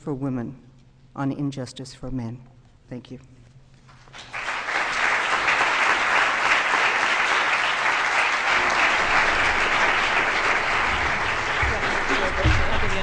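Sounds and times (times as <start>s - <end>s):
audience applause: 4.1s - 13.0s.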